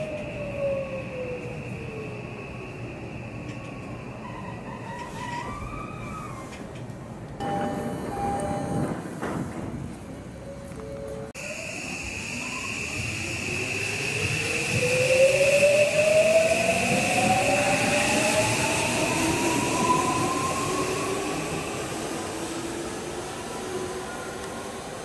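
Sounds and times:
train running noise: 0.0s - 25.0s
steady high tone: 7.4s - 8.9s.

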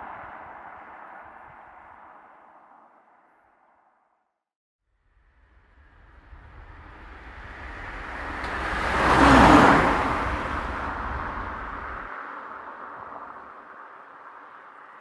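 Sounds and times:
motor vehicle passing: 5.6s - 15.0s.

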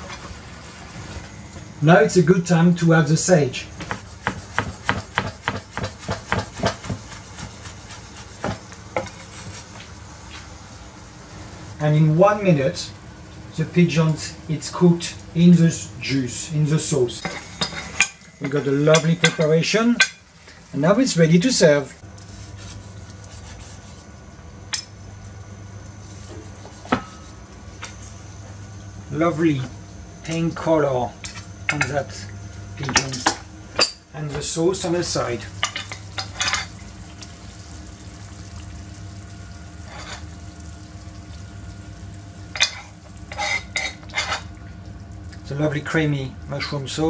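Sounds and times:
low steady hum: 0.0s - 47.0s
knife chopping on wooden board: 3.8s - 9.2s
knife slicing meat: 22.2s - 24.1s.

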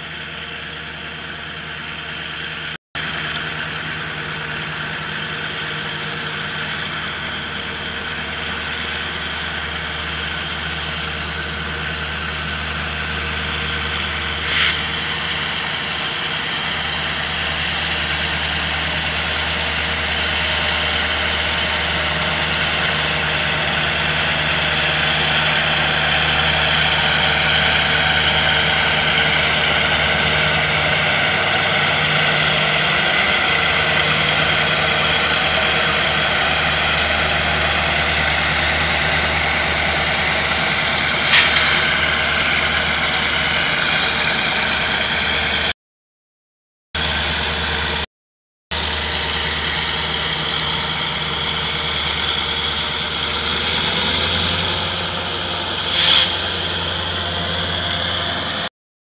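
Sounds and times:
diesel locomotives passing: 0.0s - 45.7s, 47.0s - 48.0s, 48.7s - 58.7s
brief sharp noise: 14.4s - 14.8s, 41.2s - 42.1s, 55.8s - 56.5s.

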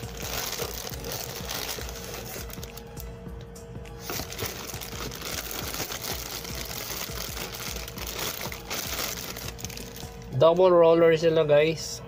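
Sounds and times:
plastic bag crinkling: 0.0s - 3.1s, 4.0s - 10.4s.

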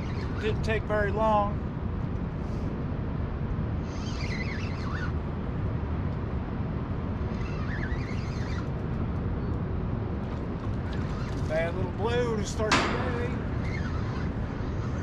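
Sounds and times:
bird chirping: 0.0s - 0.6s, 3.9s - 5.2s, 7.3s - 8.7s, 12.9s - 15.0s
low outdoor rumble: 0.0s - 15.0s.

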